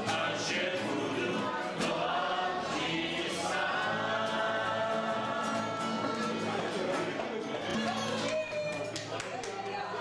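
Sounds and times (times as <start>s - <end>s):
group of people singing: 0.0s - 7.2s
strummed acoustic guitars: 0.0s - 9.0s.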